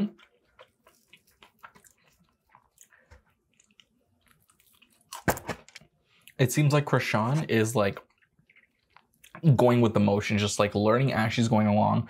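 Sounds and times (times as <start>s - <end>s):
chewing: 0.0s - 6.4s, 7.4s - 9.6s
crisp batter crackling: 0.0s - 10.5s.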